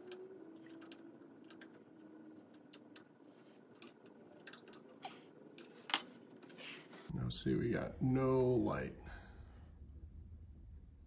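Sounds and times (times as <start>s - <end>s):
small clicks and ticks: 0.0s - 1.8s
faint low hum: 0.0s - 11.0s.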